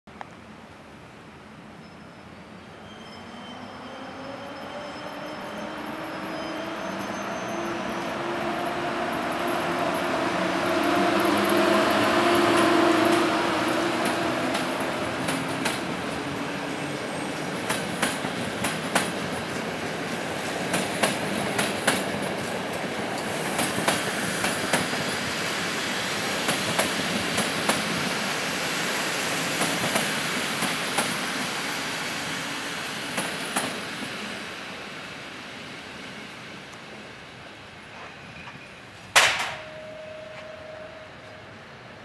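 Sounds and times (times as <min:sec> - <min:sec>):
train rumbling past: 0:01.2 - 0:42.0
electric locomotive hum: 0:01.9 - 0:42.0
train wheels clicking over rail joints: 0:08.5 - 0:16.1, 0:17.6 - 0:25.1, 0:26.4 - 0:28.1, 0:29.6 - 0:31.2, 0:37.9 - 0:40.6.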